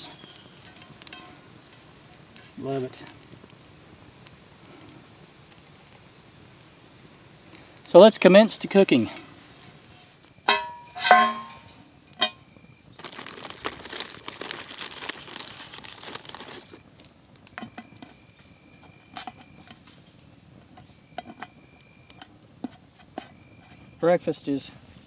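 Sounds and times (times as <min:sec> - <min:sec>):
crickets trilling: 0:00.0 - 0:25.0
rustling hiss: 0:00.0 - 0:25.0
wood fire crackling: 0:00.0 - 0:25.0
metal skillet clanking: 0:00.8 - 0:01.4, 0:10.4 - 0:12.4.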